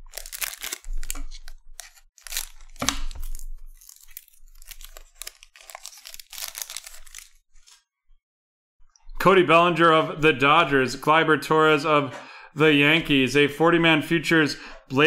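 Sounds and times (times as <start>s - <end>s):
wrapper crinkling and tearing: 0.0s - 7.8s.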